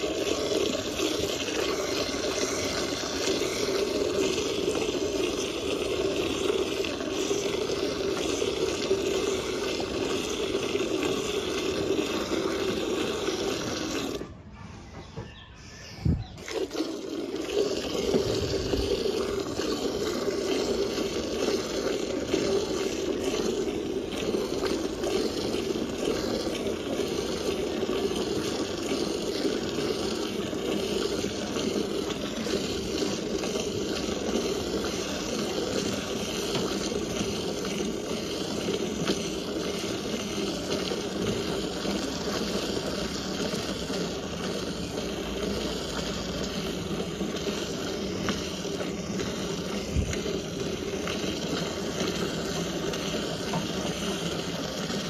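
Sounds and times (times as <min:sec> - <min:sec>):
milk streams splashing into pail: 0:00.0 - 0:14.2, 0:16.4 - 0:55.0.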